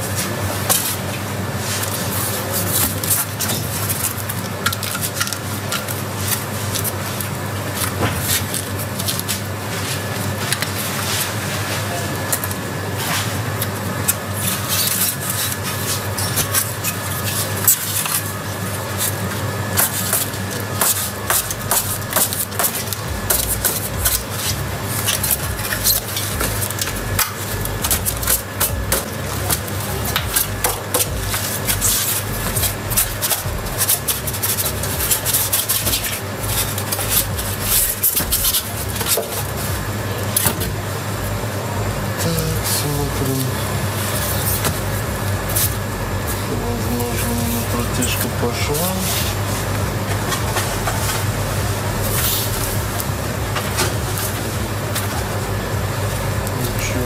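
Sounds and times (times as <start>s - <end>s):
steady low hum: 0.0s - 57.0s
foam rubbing and squeaking: 21.1s - 39.8s, 43.0s - 57.0s.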